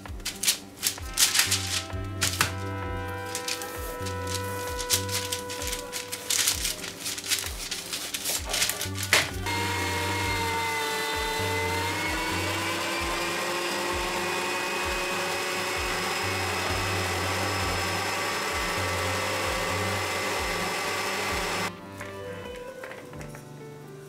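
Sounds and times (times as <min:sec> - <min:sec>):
electric meat grinder whirring: 0:09.4 - 0:21.7.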